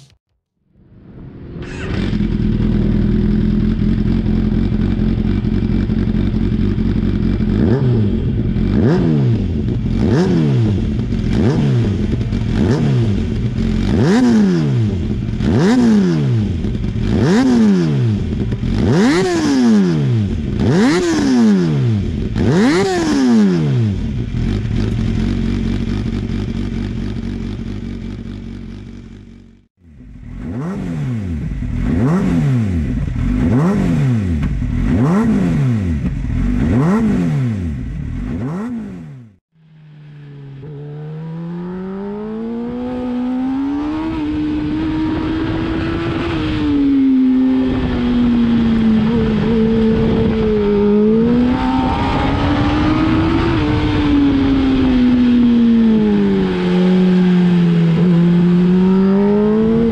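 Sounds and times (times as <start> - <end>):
motorcycle engine revving: 1.1 - 59.9
motorcycle engine idling: 2.0 - 10.0, 24.0 - 30.4.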